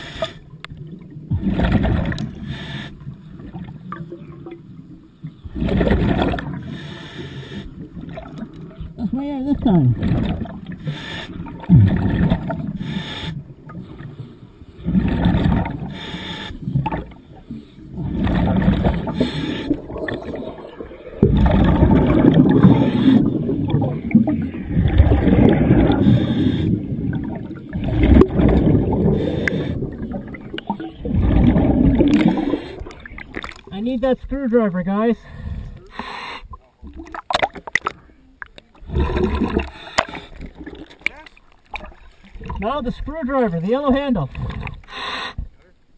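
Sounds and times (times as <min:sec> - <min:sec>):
air bubbling underwater: 0:05.5 - 0:06.6, 0:11.4 - 0:12.8, 0:14.8 - 0:15.9, 0:17.9 - 0:33.7, 0:38.8 - 0:40.9.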